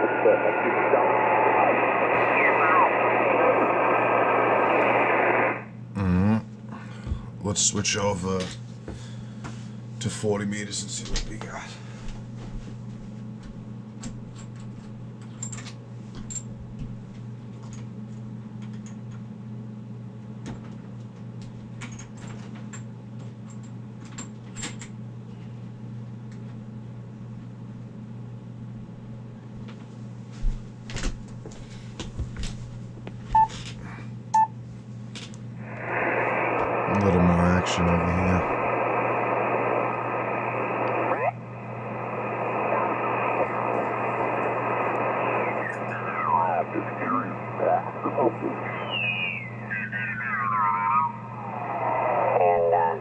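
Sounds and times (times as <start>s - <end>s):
voice over radio: 0.0s - 6.4s, 35.7s - 53.0s
radio speaker hum: 0.0s - 12.7s, 33.3s - 34.5s, 35.4s - 53.0s
radio button beeps: 45.2s - 51.1s.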